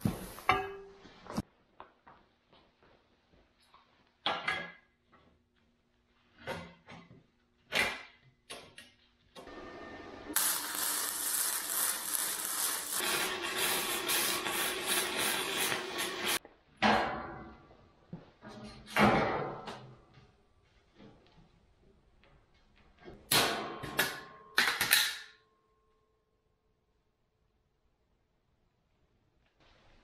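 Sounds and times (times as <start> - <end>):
arc welder crackling: 9.4 - 16.4.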